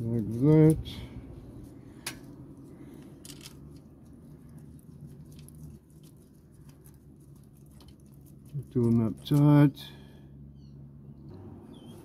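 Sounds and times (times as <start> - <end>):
low steady hum: 0.0 - 12.0
metal bolts clicking and scraping: 3.1 - 3.6.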